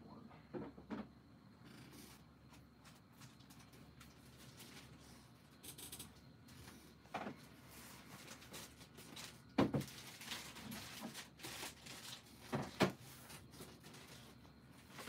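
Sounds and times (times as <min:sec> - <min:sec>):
light plastic rustling: 0:02.0 - 0:05.4, 0:06.7 - 0:15.0.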